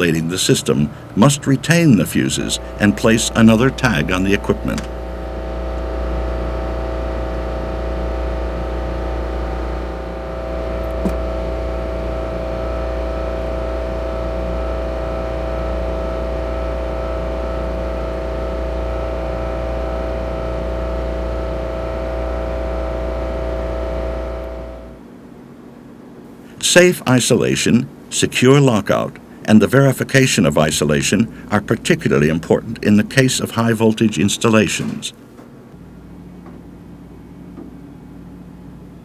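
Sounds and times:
engine room machinery hum: 0:00.0 - 0:39.0.

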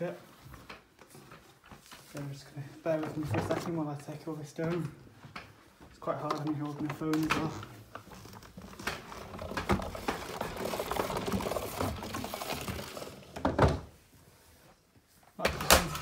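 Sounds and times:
vacuum cleaner rustling and knocking: 0:06.2 - 0:13.9.

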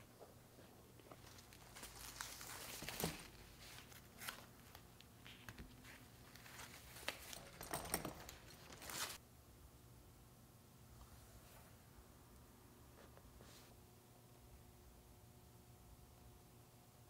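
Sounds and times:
tissue paper rustling: 0:01.1 - 0:07.6, 0:08.2 - 0:09.2.

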